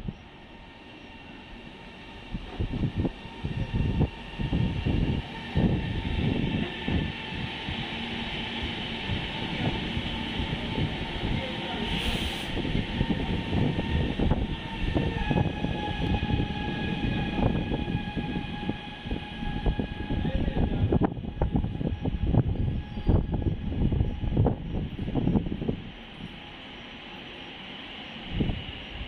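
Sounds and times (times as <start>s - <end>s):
electric train whine: 0.0s - 29.0s
train rumble: 0.0s - 29.0s
brief hiss: 11.9s - 12.6s.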